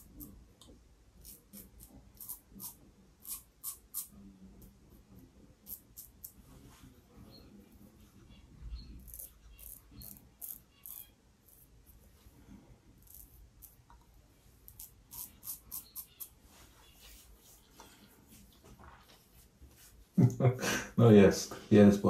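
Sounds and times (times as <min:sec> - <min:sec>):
razor scraping stubble: 0:01.2 - 0:04.1, 0:08.8 - 0:11.7, 0:14.6 - 0:17.6.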